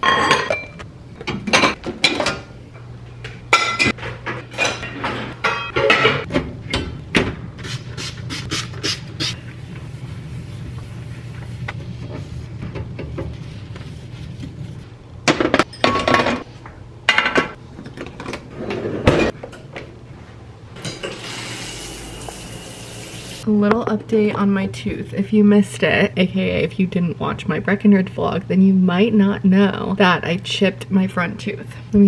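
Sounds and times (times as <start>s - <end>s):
shower water running: 21.1s - 23.4s.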